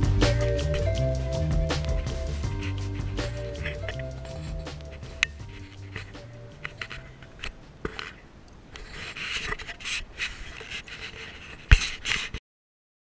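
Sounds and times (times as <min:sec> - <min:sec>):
scraping against camera housing: 0:03.4 - 0:08.2, 0:08.8 - 0:12.4.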